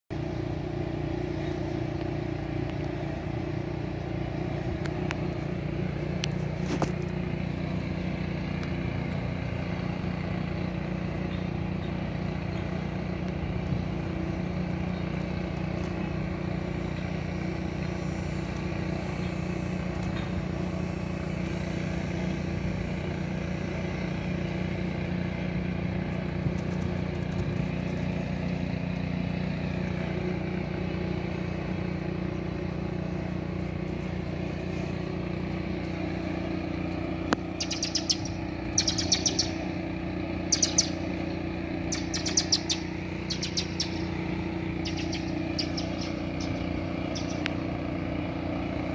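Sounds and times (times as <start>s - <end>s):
low mechanical hum: 0.1s - 48.9s
birds chirping: 0.2s - 48.9s.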